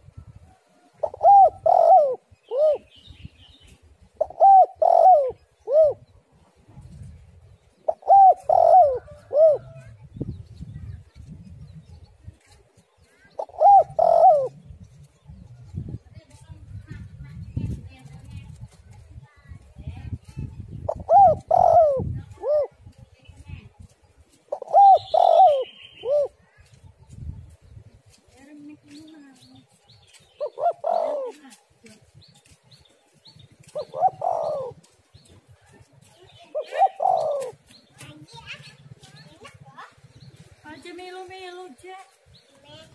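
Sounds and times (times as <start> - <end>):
dove cooing: 0.8 - 3.0, 4.1 - 7.1, 7.8 - 10.0, 13.3 - 14.9, 20.9 - 22.9, 24.5 - 26.5, 30.4 - 31.7, 33.6 - 35.3, 36.4 - 37.8
faint small birds chirping: 22.3 - 42.9.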